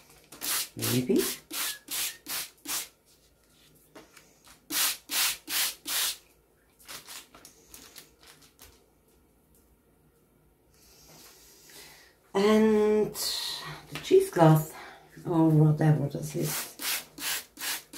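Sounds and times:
spray bottle spritzing: 0.4 - 2.9, 4.7 - 6.2
faint handling sounds: 6.7 - 11.7.

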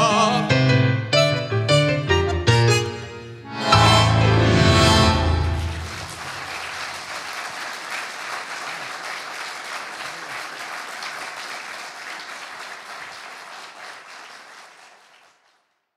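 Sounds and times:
audience applauding: 5.1 - 15.8.

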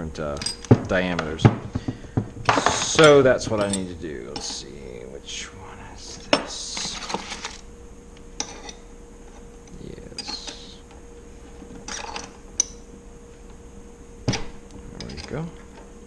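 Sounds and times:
faint steady hum: 0.0 - 16.0
parts rattling in plastic bin: 0.4 - 3.8.

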